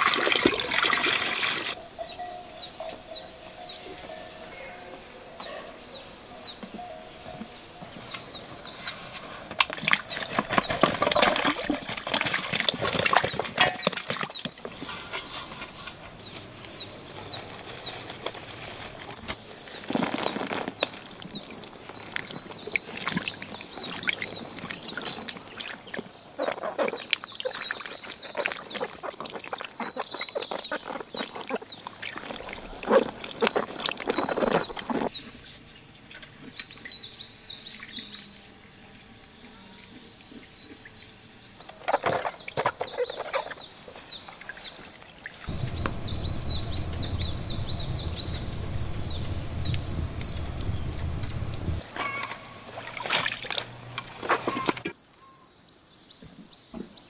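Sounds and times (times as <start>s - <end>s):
water splashing in a tub: 0.0s - 1.8s, 9.6s - 14.6s, 19.9s - 35.1s, 44.3s - 54.9s
birds chirping: 0.0s - 35.6s, 39.5s - 57.0s.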